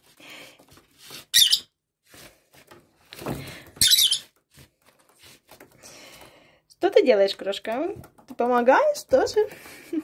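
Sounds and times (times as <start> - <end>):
bird shrill squeaky chirps: 1.3 - 1.7, 3.8 - 4.3
paper napkin rustling: 4.4 - 5.7.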